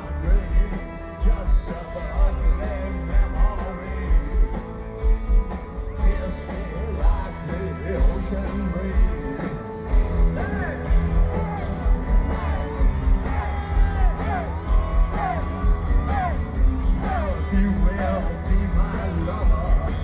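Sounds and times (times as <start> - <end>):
live rock band playing: 0.0 - 20.0
singer yelling: 10.2 - 20.0.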